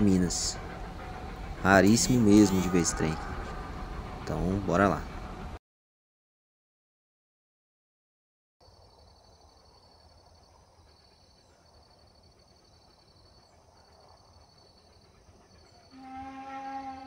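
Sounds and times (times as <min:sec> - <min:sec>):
insects trilling: 0:00.0 - 0:05.0
steam locomotive whistle: 0:15.8 - 0:17.0.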